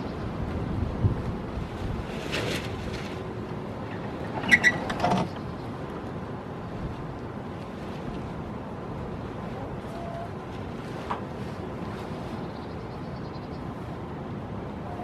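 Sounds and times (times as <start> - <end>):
wind buffeting microphone: 0.0 - 3.2.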